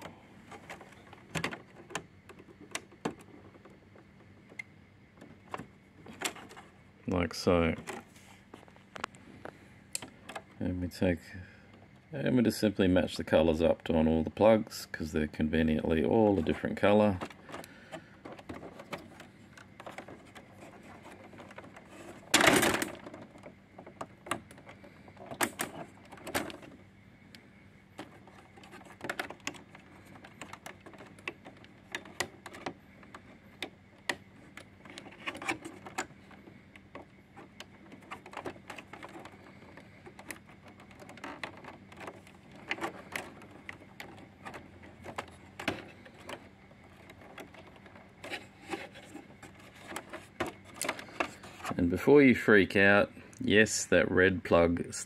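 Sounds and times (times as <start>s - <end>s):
cables rustling: 0.0s - 12.8s, 13.4s - 52.4s.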